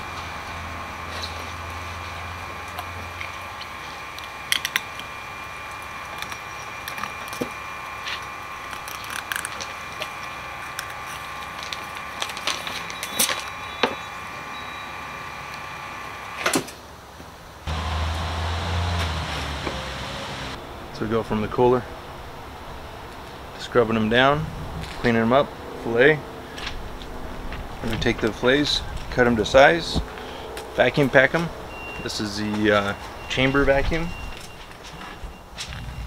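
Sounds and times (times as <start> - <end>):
faint high hum: 0.0 - 17.7
low steady hum: 0.0 - 36.0.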